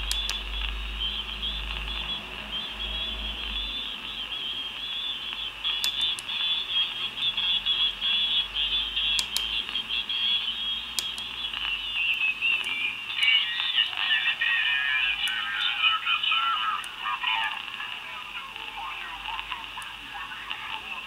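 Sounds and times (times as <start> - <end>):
sharp clicks: 0.0 - 2.2, 3.8 - 7.5, 8.9 - 13.7
high-pitched wavering radio signals: 0.0 - 21.0
radio band noise: 0.0 - 21.0.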